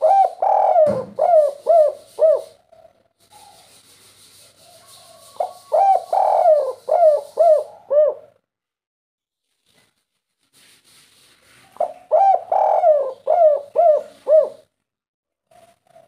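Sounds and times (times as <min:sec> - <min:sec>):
dove cooing: 0:00.0 - 0:03.6, 0:05.1 - 0:08.4, 0:11.8 - 0:14.7.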